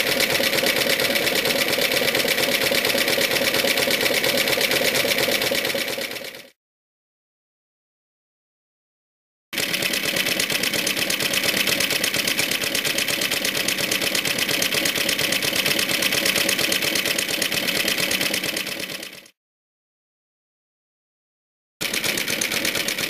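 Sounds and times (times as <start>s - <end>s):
motor mower engine running: 0.0s - 6.5s, 9.6s - 19.3s, 21.8s - 23.0s.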